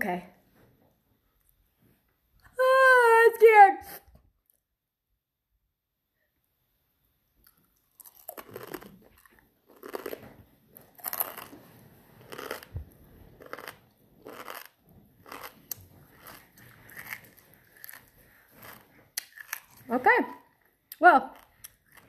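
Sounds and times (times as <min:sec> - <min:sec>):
person crunching dried scorpion: 0:07.4 - 0:10.2, 0:10.8 - 0:12.7, 0:13.3 - 0:19.9.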